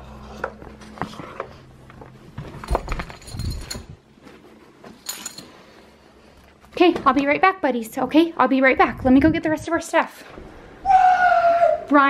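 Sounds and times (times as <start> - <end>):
light clinks: 2.9 - 4.0, 5.0 - 5.6.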